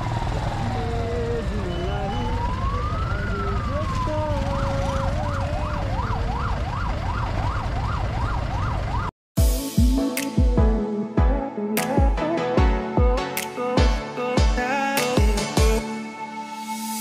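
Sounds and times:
siren wailing and yelping: 0:00.0 - 0:09.1
music with heavy bass: 0:09.4 - 0:17.0.

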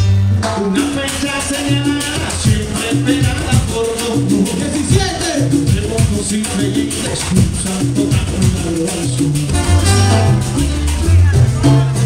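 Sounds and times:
bass line: 0:00.0 - 0:12.0
hand percussion: 0:00.0 - 0:12.0
salsa band playing: 0:00.0 - 0:12.0
held horn or voice notes: 0:09.5 - 0:10.8.

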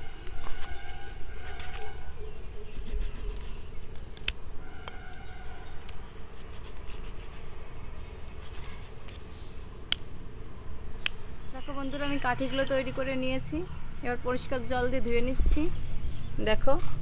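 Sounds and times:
knife scraping bamboo twig: 0:00.2 - 0:07.5, 0:08.2 - 0:09.3
sharp clicks: 0:02.7 - 0:05.0, 0:09.9 - 0:10.1.

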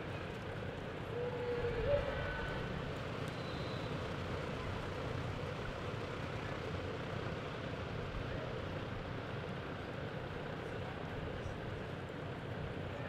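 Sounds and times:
indoor arena rumble: 0:00.0 - 0:13.0.

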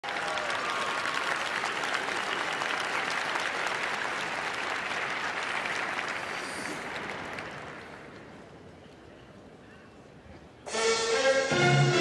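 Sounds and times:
crowd applauding: 0:00.0 - 0:08.5.

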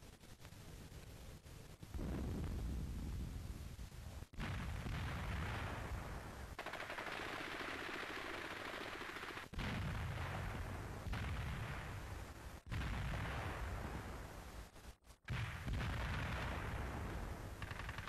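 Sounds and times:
artillery booms: 0:01.9 - 0:03.3, 0:04.4 - 0:06.3, 0:09.5 - 0:12.1, 0:15.3 - 0:17.6
machine-gun fire: 0:06.5 - 0:12.0, 0:15.3 - 0:18.0.

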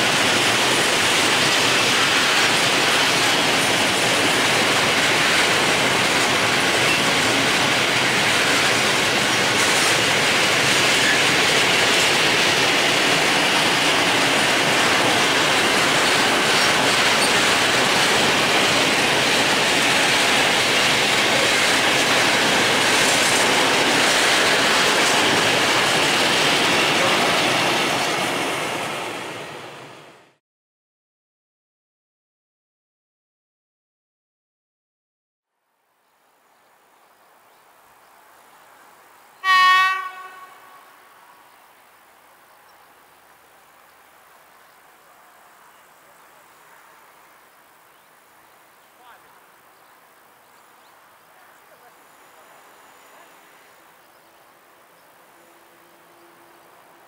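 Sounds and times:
freight train wheels on rails: 0:00.0 - 0:30.4.

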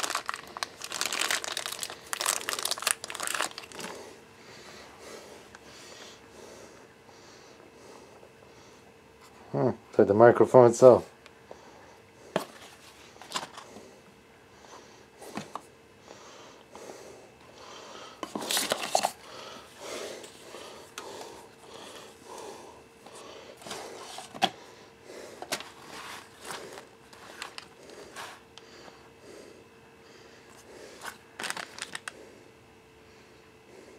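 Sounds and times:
paper and plastic rustling: 0:00.0 - 0:04.0, 0:12.4 - 0:13.6, 0:18.2 - 0:19.2, 0:23.6 - 0:24.5, 0:25.4 - 0:28.4, 0:31.0 - 0:32.1.

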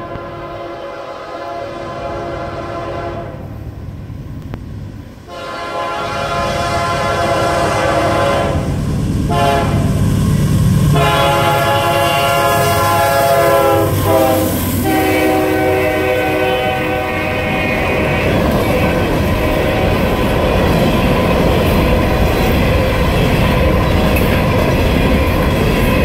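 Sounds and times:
locomotive air horn blasts: 0:00.0 - 0:03.5, 0:05.3 - 0:08.7, 0:09.3 - 0:09.9, 0:10.9 - 0:20.3
train wheels rumbling: 0:00.0 - 0:26.0.

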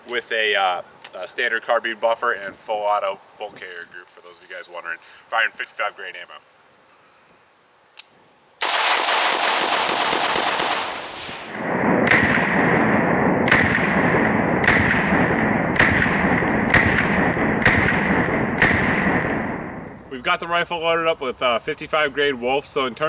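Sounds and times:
rifle shots: 0:08.6 - 0:19.9
slowed gunshot booms: 0:08.6 - 0:19.9.

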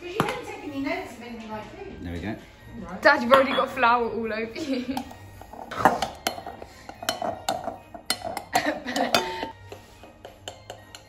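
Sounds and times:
spoon clinking in a glass bowl: 0:05.8 - 0:09.5, 0:10.2 - 0:11.0.

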